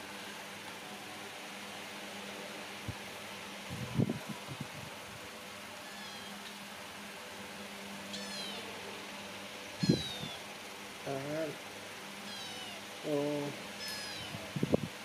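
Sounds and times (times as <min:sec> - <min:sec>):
steady low hum: 0:00.0 - 0:15.0
kitten meowing: 0:05.8 - 0:06.5, 0:08.1 - 0:08.7, 0:09.8 - 0:10.5, 0:12.2 - 0:12.8, 0:13.8 - 0:14.5.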